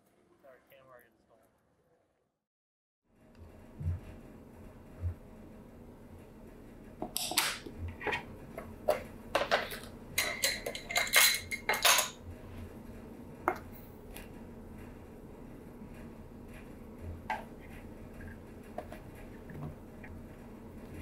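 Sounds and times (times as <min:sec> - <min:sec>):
metal measuring cups clinking: 0:09.4 - 0:12.2.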